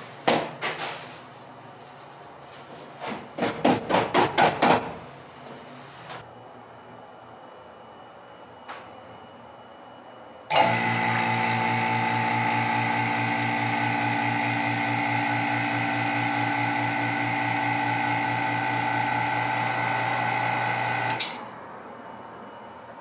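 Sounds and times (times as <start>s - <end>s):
vacuum pump droning: 10.5s - 21.4s.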